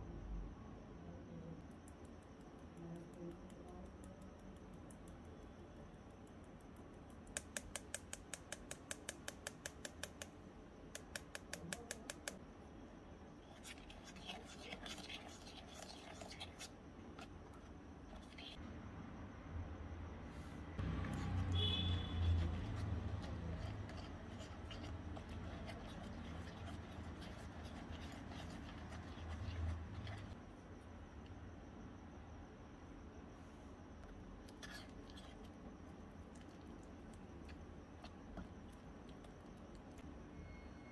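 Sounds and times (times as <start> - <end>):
low steady hum: 8.6 - 40.9
spoon scraping metal bowl: 21.0 - 30.4.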